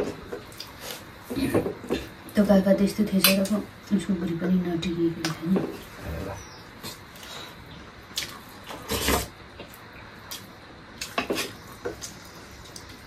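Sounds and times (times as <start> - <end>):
chewing and lip smacks: 8.1 - 8.8.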